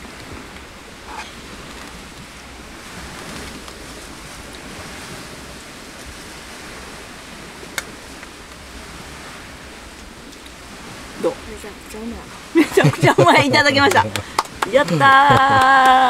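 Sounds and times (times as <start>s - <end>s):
lake waves: 0.0s - 16.0s.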